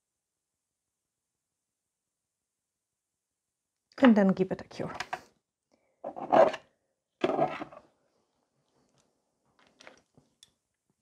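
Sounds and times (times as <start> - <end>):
rubbing scraping sounds: 6.0 - 6.6, 7.2 - 7.9.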